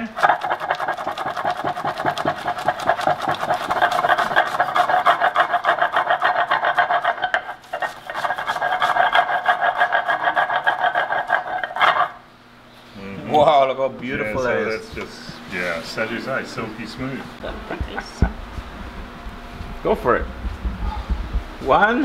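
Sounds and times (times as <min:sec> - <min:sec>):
stone grinding on stone: 0:00.0 - 0:12.2.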